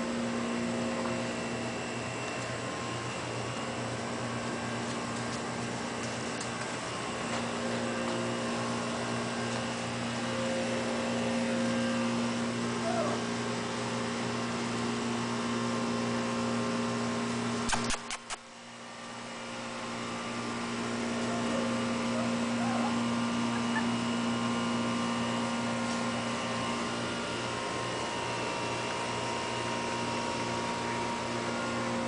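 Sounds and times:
steady mechanical hum: 0.0 - 32.0
sharp clicks: 17.7 - 18.5.

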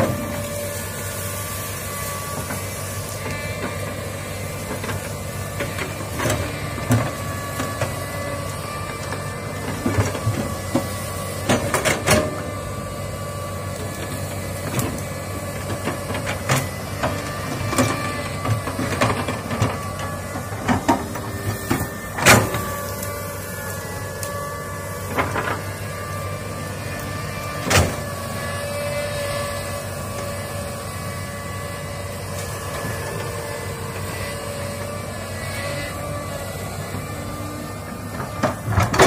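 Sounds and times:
engine whine: 0.0 - 39.0
excavator diesel engine running: 0.0 - 39.0
trees cracking and knocking: 1.7 - 39.0.

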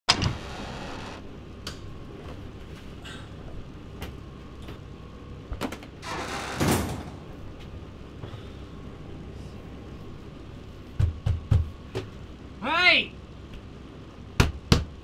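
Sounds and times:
steady low hum: 0.1 - 15.0
heavy door thud: 6.1 - 7.4.

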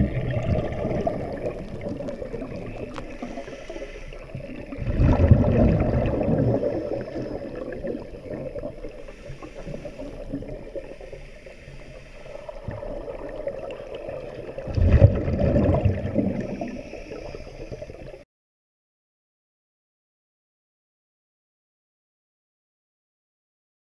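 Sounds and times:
underwater bubbles gurgling: 0.0 - 18.2.

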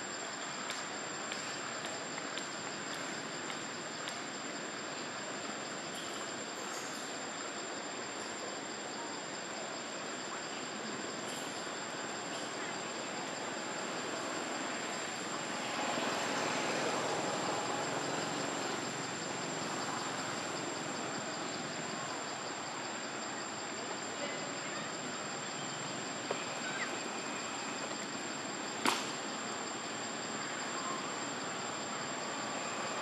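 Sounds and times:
forest ambience hiss: 0.0 - 33.0
sharp snap: 28.8 - 29.2.

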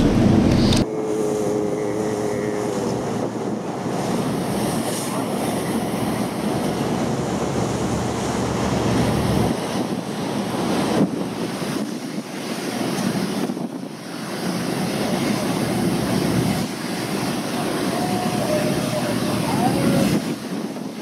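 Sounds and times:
low engine hum: 0.0 - 11.8
water rushing past boat hull: 0.0 - 21.0
wind buffeting microphone: 0.0 - 21.0.

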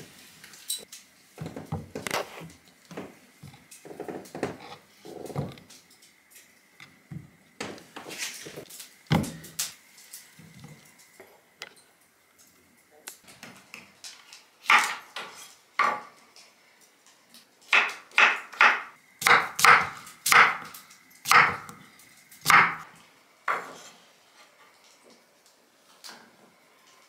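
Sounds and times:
knife chopping on wooden board: 17.8 - 20.7, 21.3 - 21.7, 22.4 - 22.9.

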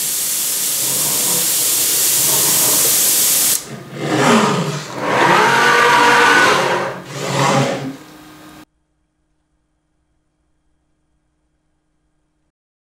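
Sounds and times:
milling spindle high hiss: 0.0 - 6.3
axis drives whining: 0.0 - 8.7.

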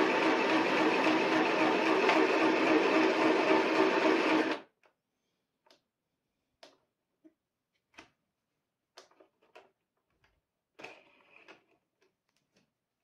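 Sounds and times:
sewing machine whirring: 0.0 - 4.6.

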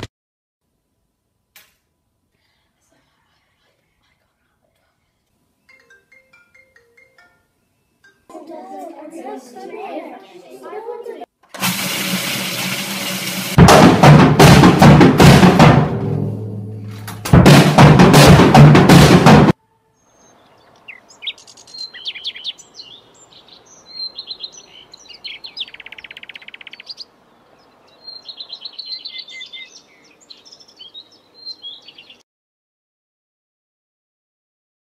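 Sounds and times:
drum kit with cymbal crashes: 11.6 - 19.6
faint bird chirps: 19.7 - 32.2.

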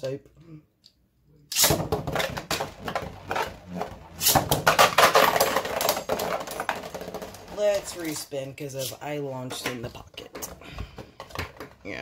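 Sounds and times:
spinning tops launched by ripcord: 1.5 - 7.5
spinning tops clattering in plastic stadium: 1.6 - 8.2.

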